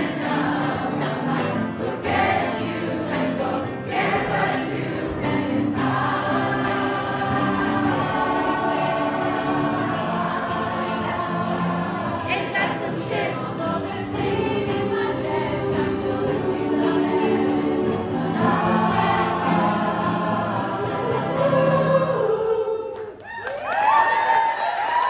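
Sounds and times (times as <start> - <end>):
choir singing: 0.0 - 23.2
crowd cheering and applauding: 23.0 - 25.0.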